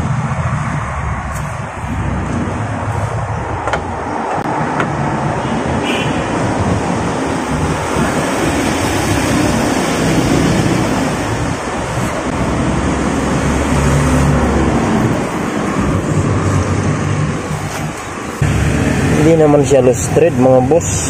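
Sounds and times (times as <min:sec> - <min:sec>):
traffic rumble: 0:00.0 - 0:21.0.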